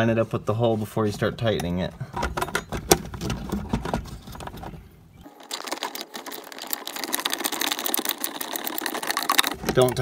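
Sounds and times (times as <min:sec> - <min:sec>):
ratchet clicking rapidly: 0:05.5 - 0:10.0.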